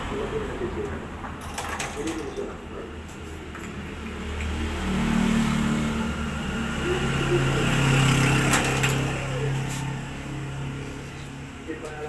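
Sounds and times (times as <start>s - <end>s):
passing vehicle engine: 2.4s - 12.0s.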